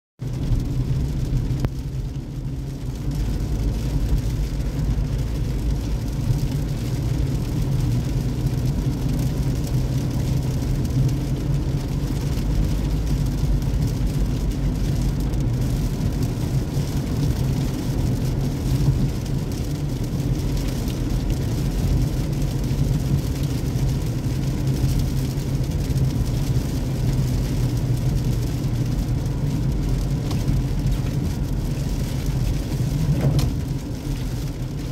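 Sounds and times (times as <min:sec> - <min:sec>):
engine and tyre rumble: 0:00.2 - 0:34.9.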